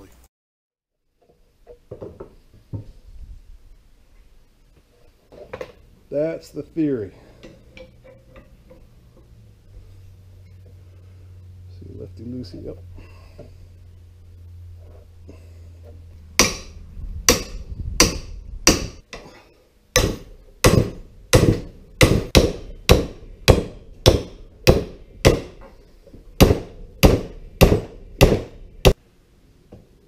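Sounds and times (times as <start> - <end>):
hammer striking metal wrench: 16.4 - 19.2.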